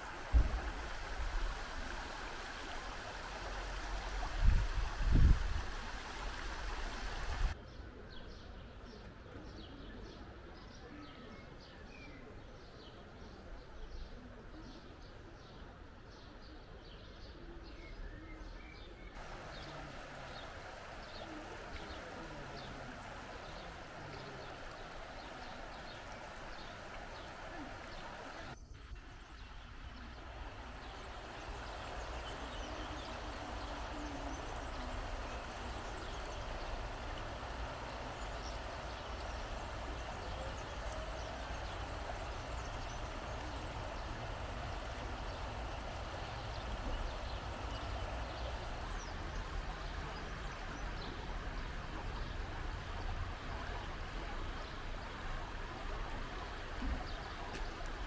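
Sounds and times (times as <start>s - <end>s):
small birds chirping: 18.8s - 58.0s
steady rushing background noise: 30.2s - 53.3s.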